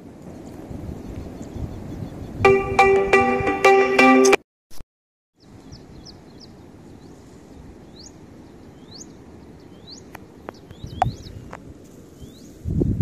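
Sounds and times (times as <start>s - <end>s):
birds chirping: 0.2s - 2.4s, 5.4s - 12.6s.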